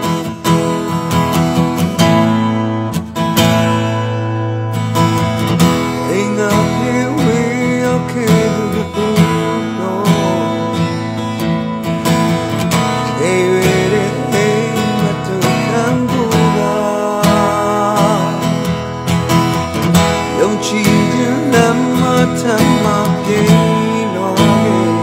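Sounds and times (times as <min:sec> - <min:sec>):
strummed acoustic guitar: 0:00.0 - 0:25.0
person singing: 0:05.7 - 0:11.4, 0:12.6 - 0:25.0.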